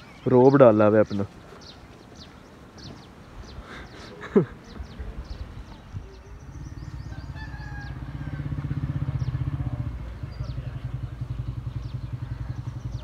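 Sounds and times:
motorcycle engine running: 0:06.2 - 0:13.0.

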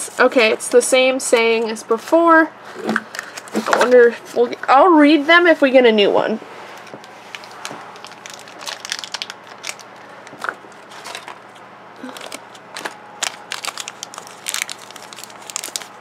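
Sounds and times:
plastic wrapper crinkling: 0:07.0 - 0:16.0.

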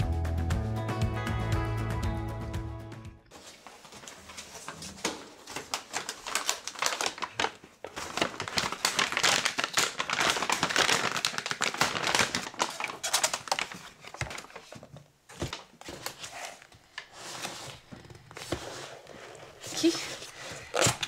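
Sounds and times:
paper bag crinkling: 0:03.3 - 0:17.8.

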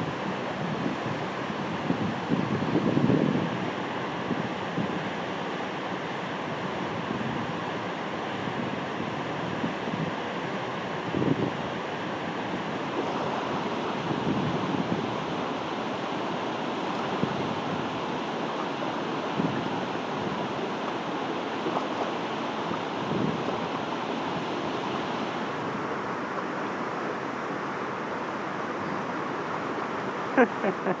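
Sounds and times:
river water rushing over rocks: 0:11.7 - 0:31.0.

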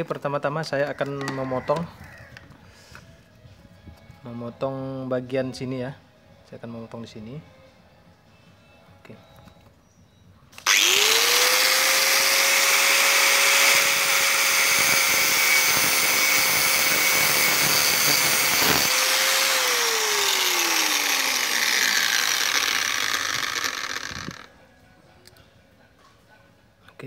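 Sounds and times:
angle grinder motor whine: 0:10.6 - 0:24.5
disc grinding through steel: 0:10.7 - 0:24.5.

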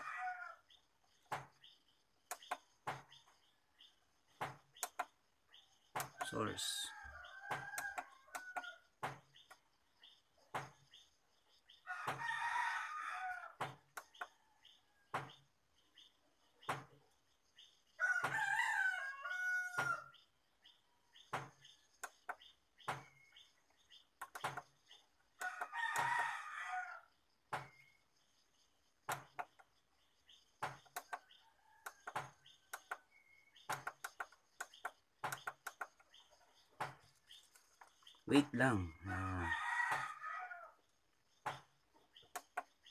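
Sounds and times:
rooster crowing: 0:06.6 - 0:08.8, 0:11.8 - 0:13.6, 0:18.0 - 0:20.1, 0:25.4 - 0:27.1, 0:38.8 - 0:40.8.

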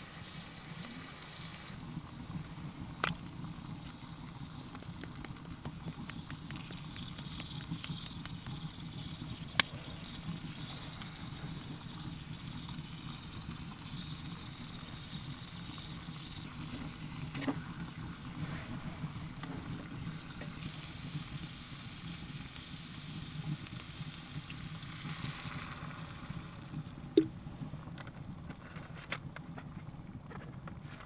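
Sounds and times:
bacon sizzling with crackling pops: 0:00.0 - 0:30.9.

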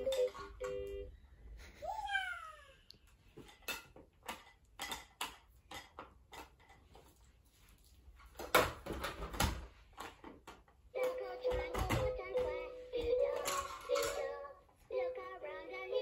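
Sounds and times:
plastic toys clicking and tapping: 0:00.0 - 0:01.0, 0:03.1 - 0:07.2, 0:08.4 - 0:14.6
toys knocking: 0:11.0 - 0:14.4.

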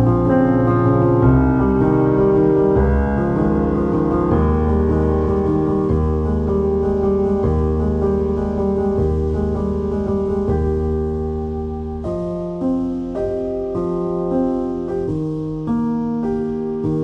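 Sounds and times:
slow keyboard chords: 0:00.0 - 0:17.0.

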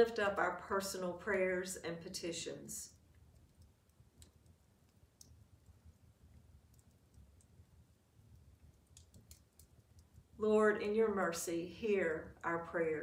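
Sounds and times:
low room hum: 0:00.0 - 0:13.0
wood fire crackling: 0:02.8 - 0:10.7.

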